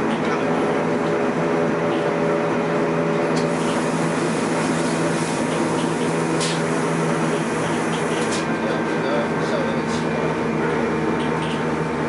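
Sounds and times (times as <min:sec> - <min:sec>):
train motor hum: 0:00.0 - 0:12.0.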